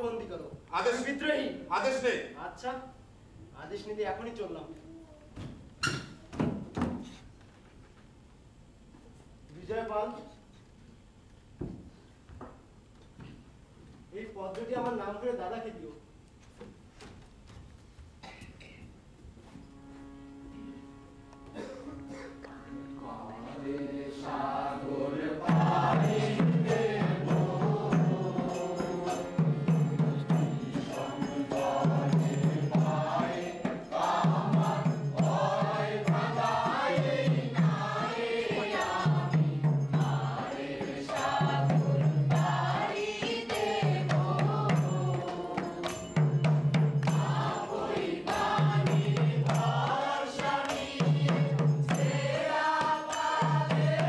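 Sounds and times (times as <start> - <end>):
quick percussion strikes: 25.1 - 54.0.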